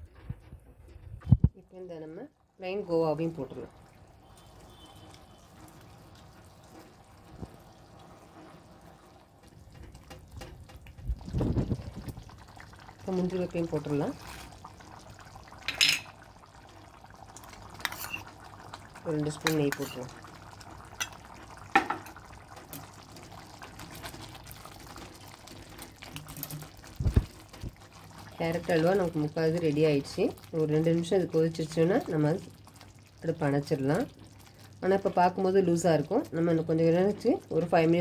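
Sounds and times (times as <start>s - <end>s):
syrup bubbling: 2.3s - 38.0s
ladle stirring: 3.1s - 33.0s
spatula scraping pan: 17.8s - 18.3s.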